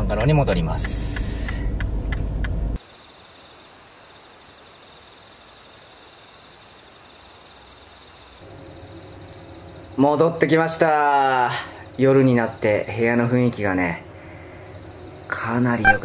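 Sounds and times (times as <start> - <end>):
car engine and road rumble: 0.0 - 2.8
crickets trilling: 2.8 - 15.8.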